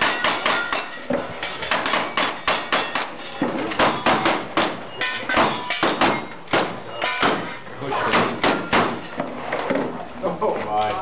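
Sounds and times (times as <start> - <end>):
bullets pinging on steel targets: 0.0 - 9.1.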